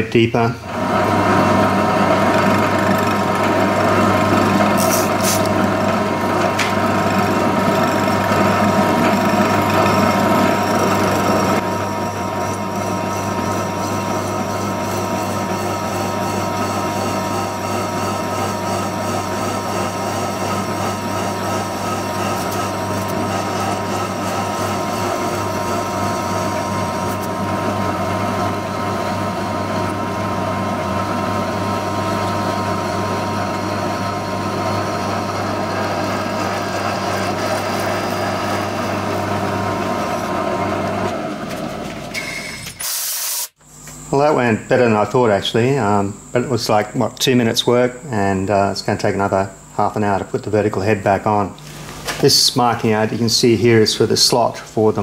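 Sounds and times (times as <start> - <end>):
milling machine sawing metal: 0.6 - 41.2
motor hum: 0.6 - 42.8.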